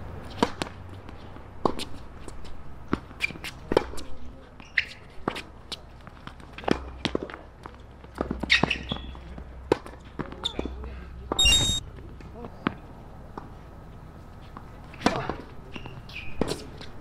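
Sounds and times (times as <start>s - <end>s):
shoe squeaks: 4.6s - 5.1s, 8.5s - 9.2s, 11.4s - 11.8s, 15.7s - 16.4s.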